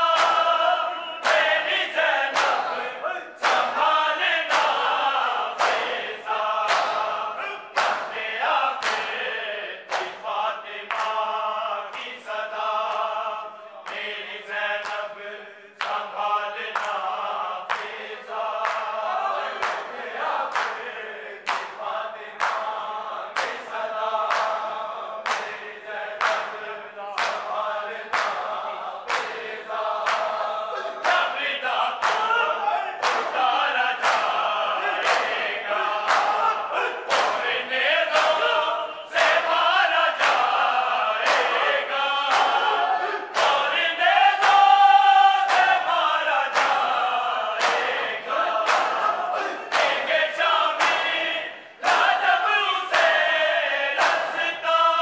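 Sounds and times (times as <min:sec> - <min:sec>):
men chanting in unison: 0:00.0 - 0:55.0
palm slaps on bare chests: 0:05.6 - 0:06.0, 0:06.7 - 0:07.1, 0:07.8 - 0:08.2, 0:37.1 - 0:37.4, 0:50.8 - 0:51.2.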